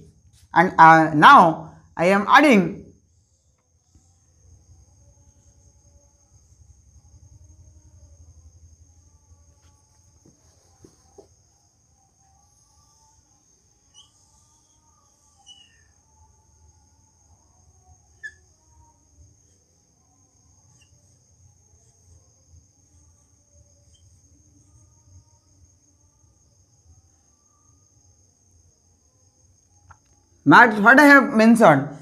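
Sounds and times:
marker squeaking on whiteboard: 13.8s - 16.0s, 18.1s - 18.5s.

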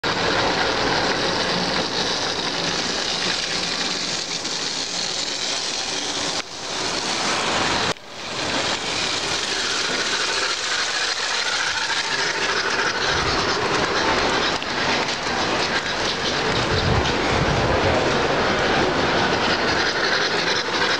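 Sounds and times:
toy train wheels rattling on rails: 0.0s - 20.9s
toy train motor whirring: 0.1s - 20.9s.

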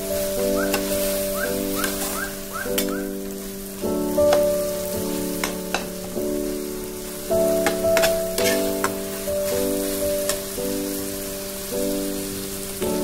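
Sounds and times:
greens sizzling in a wok: 0.0s - 13.0s
soft background music: 0.0s - 13.0s
metal spatula scraping a pan: 7.6s - 10.4s.

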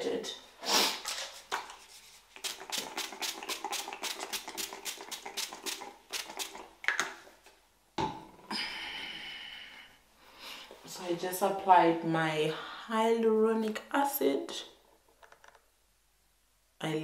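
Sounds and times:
brushing stroke on skin: 1.0s - 6.7s.

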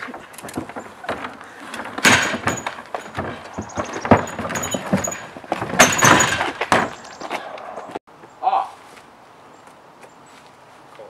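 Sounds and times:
loud thumps: 0.0s - 7.2s.

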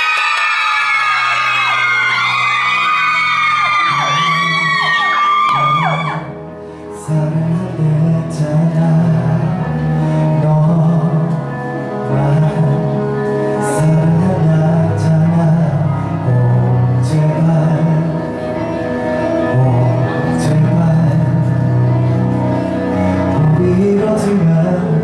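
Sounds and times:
fan screaming: 0.0s - 6.4s
pop song backing track: 0.0s - 25.0s
man singing into a microphone: 3.7s - 25.0s.

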